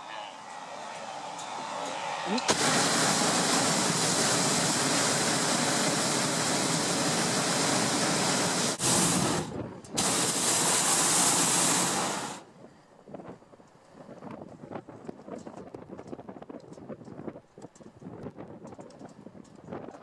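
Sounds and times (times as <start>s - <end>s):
propane burner roaring: 0.4s - 12.5s.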